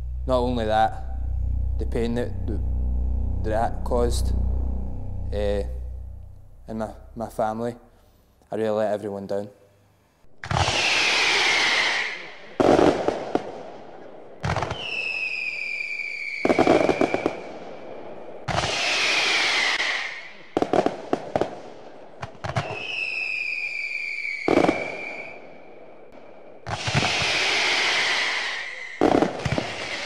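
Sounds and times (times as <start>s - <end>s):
falling firework whistle: 10.5s - 12.3s, 14.5s - 17.5s, 18.5s - 20.3s, 22.4s - 25.6s, 26.7s - 30.0s.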